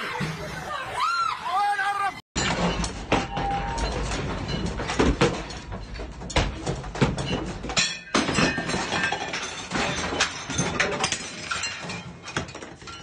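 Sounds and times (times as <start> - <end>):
household objects rattling and breaking: 2.4 - 13.0.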